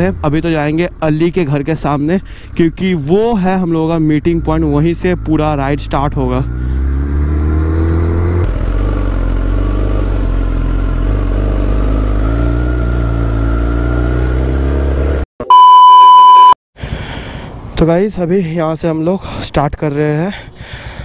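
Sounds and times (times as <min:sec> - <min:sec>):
motorcycle engine running: 0:06.4 - 0:15.2
test-tone beep: 0:15.4 - 0:16.6.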